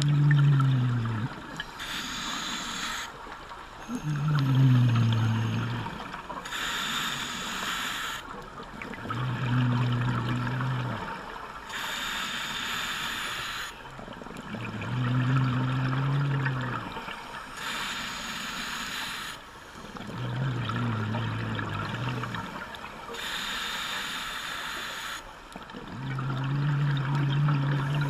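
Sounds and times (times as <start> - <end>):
exhaled bubbles burbling: 0.0 - 1.8, 3.7 - 6.5, 8.5 - 11.6, 13.9 - 17.2, 19.9 - 23.0, 25.6 - 28.0
scuba regulator hissing inhale: 1.6 - 3.2, 3.8 - 8.3, 11.7 - 13.8, 17.4 - 20.0, 22.0 - 25.3.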